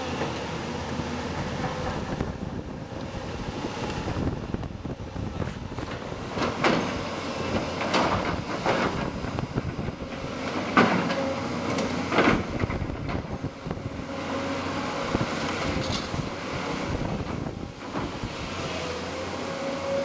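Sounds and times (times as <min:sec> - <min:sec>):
excavator engine running: 0:00.0 - 0:20.0.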